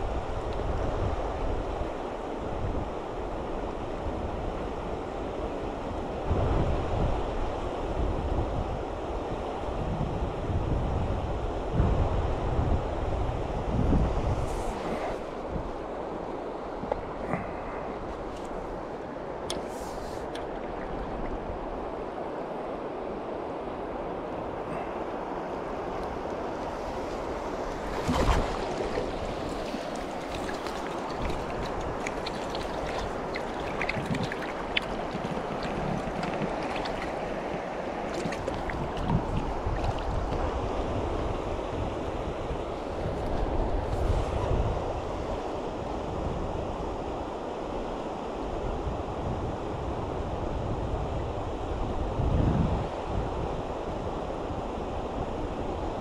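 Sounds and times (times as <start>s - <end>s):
wind rumbling on microphone: 0.0s - 56.0s
river rushing over stones: 23.6s - 41.0s
small sharp water splashes: 27.8s - 40.4s.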